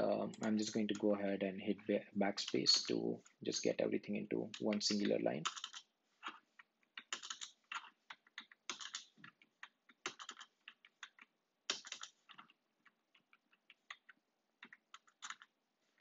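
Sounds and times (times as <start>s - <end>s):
computer keyboard keystrokes: 4.6s - 15.5s.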